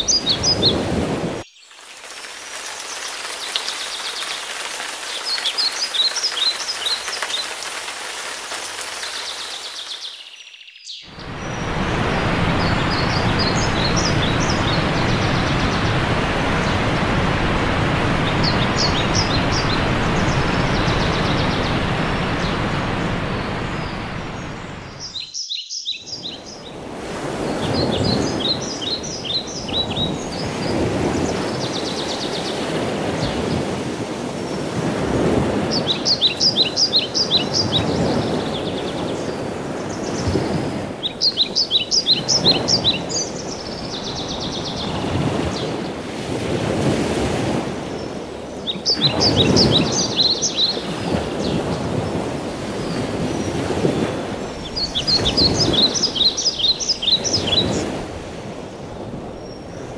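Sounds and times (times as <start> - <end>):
birdsong high chirps: 0.0 - 7.8, 8.7 - 17.3, 17.9 - 26.8, 27.4 - 33.8, 35.6 - 46.0, 47.9 - 59.9
steady rushing noise: 11.2 - 25.1.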